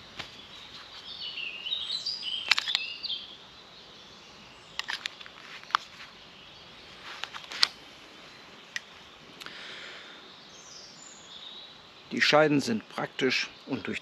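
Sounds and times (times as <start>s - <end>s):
songbird warbling chirps: 0.3s - 7.2s, 8.2s - 14.0s
plastic clicks of knife sheath: 2.5s - 2.8s.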